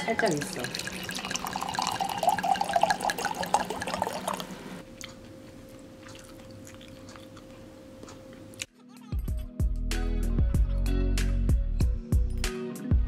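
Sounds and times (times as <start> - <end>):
wine pouring into a glass: 0.0 - 4.6.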